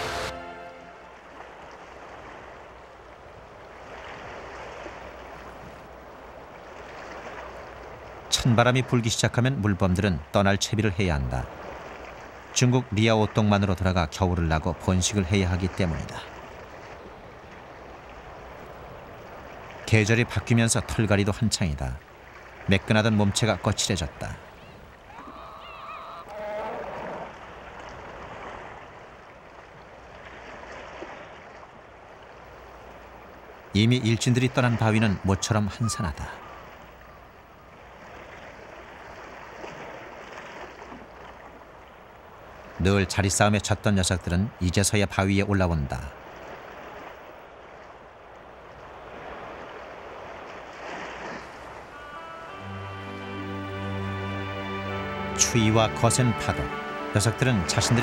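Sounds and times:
sea surf rushing: 0.0 - 29.2, 32.3 - 40.4, 48.8 - 58.0
short pitched call: 51.8 - 58.0.

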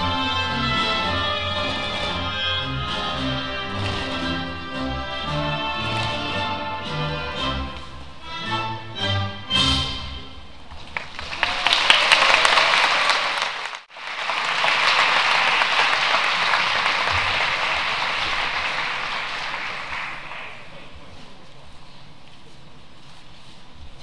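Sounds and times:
audience applauding: 0.9 - 4.5, 10.9 - 20.9.

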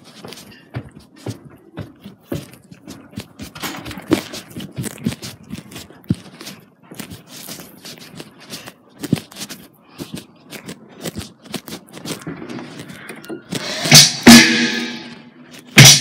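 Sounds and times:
footsteps: 0.0 - 16.0
loud sharp hit: 13.7 - 16.0.

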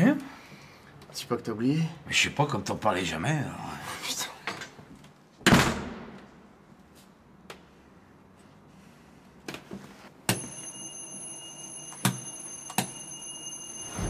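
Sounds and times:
steady high ringing tone: 10.3 - 14.0.

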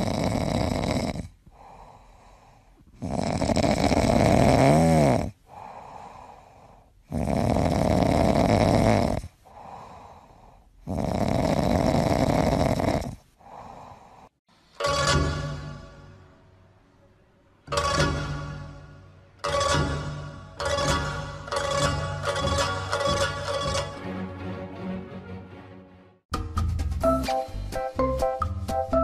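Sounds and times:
cat snoring: 0.0 - 6.4, 7.0 - 14.3
cat breathing softly: 1.4 - 3.1, 5.4 - 7.1, 9.4 - 10.9, 13.3 - 14.4.

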